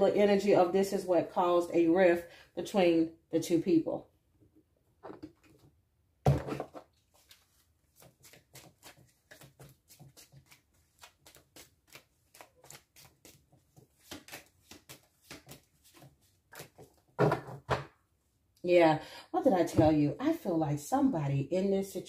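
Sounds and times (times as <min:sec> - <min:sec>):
cards being shuffled: 0:06.6 - 0:17.0.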